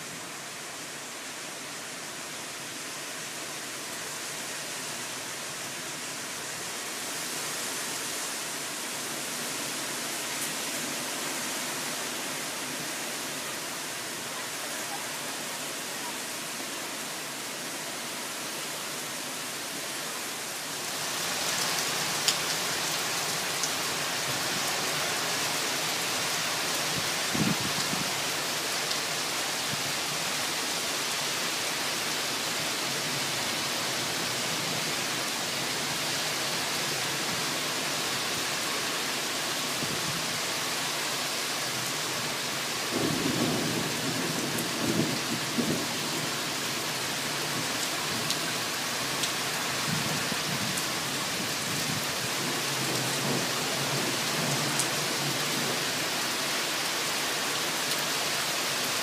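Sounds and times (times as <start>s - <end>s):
heavy rain hissing: 0.0s - 59.0s.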